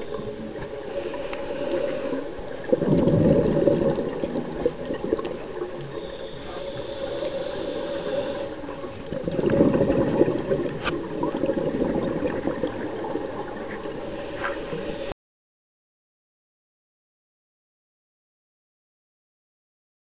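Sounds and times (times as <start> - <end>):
underwater bubbles rushing: 1.6 - 15.0.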